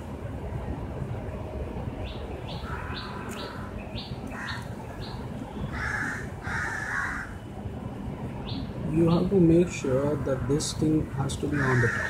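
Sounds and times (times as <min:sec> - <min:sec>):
low background rumble: 0:00.0 - 0:12.0
birds chirping: 0:01.9 - 0:12.0
harsh lower bird calls: 0:02.0 - 0:07.5, 0:08.4 - 0:12.0.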